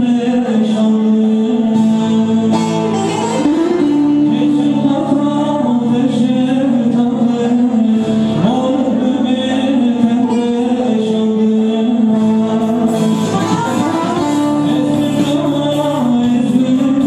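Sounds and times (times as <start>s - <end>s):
amplified long-necked lute: 0.0s - 17.0s
man singing ornamented melody: 0.0s - 17.0s.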